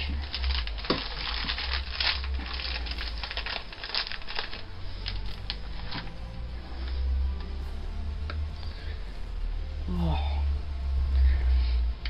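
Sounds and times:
plastic wrapper crinkling: 0.0s - 6.2s
steady low hum: 0.0s - 12.0s.

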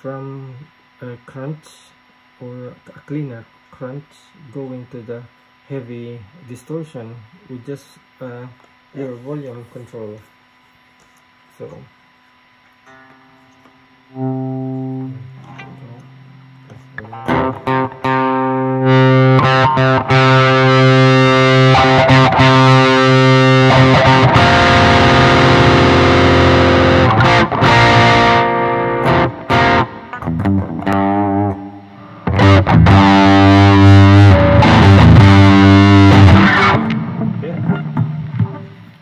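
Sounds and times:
distorted electric guitar chords: 12.0s - 39.0s.

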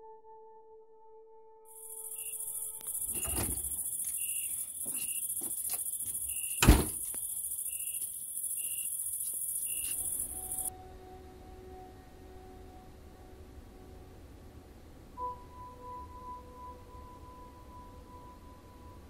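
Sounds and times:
crickets chirping: 1.7s - 10.7s
loud thump: 3.1s - 3.8s, 6.6s - 7.1s
knocks: 6.6s - 7.1s.

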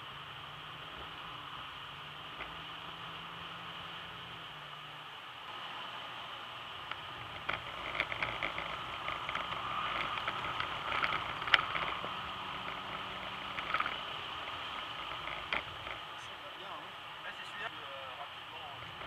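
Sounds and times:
faint car engine: 0.0s - 19.0s
tyres on wet road: 0.0s - 19.0s
crackles of spray: 5.4s - 19.0s.

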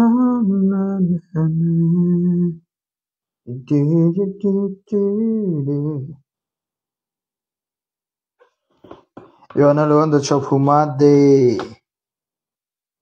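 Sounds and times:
man singing unaccompanied: 0.0s - 2.7s, 3.4s - 6.3s.

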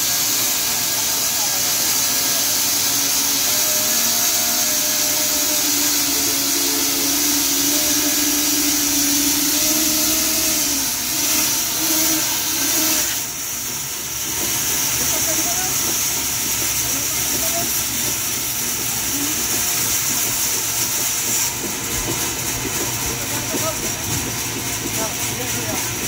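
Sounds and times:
band saw blade hissing in wood: 0.0s - 13.3s
machine hum: 0.0s - 25.8s.

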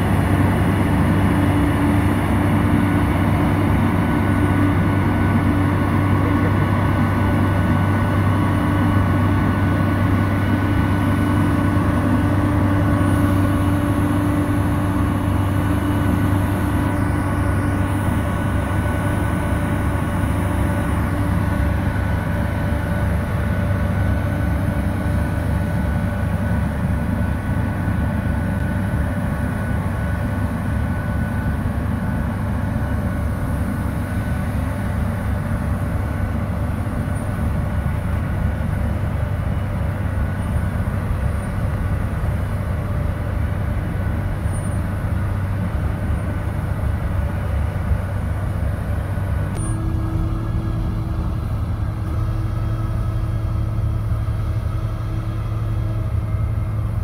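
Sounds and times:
truck engine: 0.0s - 57.0s
wheel loader diesel engine: 0.0s - 57.0s.

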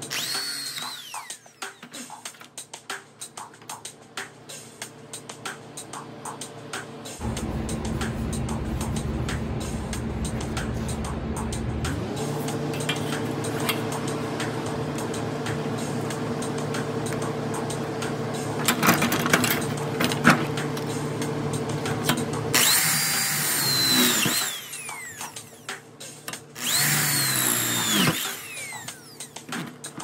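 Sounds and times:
electric drill whining: 0.0s - 2.0s, 22.6s - 25.8s, 26.6s - 29.5s
steady hum: 5.5s - 29.4s.

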